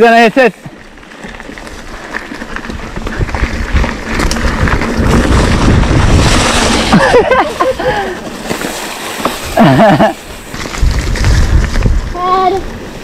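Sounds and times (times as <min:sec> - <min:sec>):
bike tyre rumble: 0:00.0 - 0:13.0
wind buffeting microphone: 0:01.0 - 0:08.5, 0:10.3 - 0:13.0
bike frame rattle: 0:01.0 - 0:12.0.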